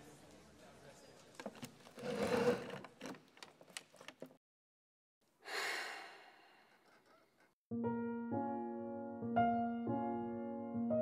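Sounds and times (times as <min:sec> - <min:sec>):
deep exhale sigh: 0:05.4 - 0:06.8
woman breathing: 0:05.4 - 0:07.0.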